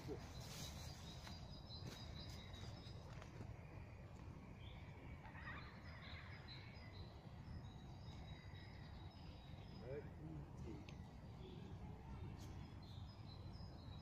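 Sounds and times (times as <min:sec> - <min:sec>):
small birds chirping: 0:00.0 - 0:14.0.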